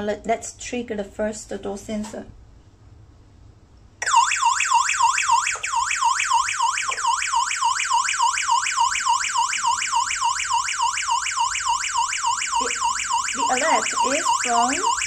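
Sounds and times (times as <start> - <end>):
electronic alarm siren warbling: 4.0 - 15.0.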